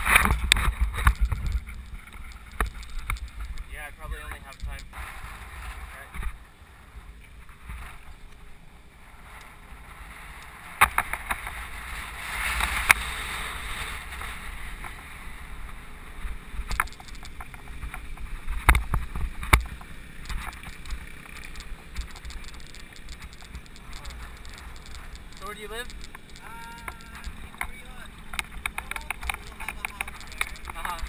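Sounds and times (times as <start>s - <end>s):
wind buffeting microphone: 0.0s - 8.3s
bike knocking and rattling: 0.0s - 8.6s, 9.2s - 31.0s.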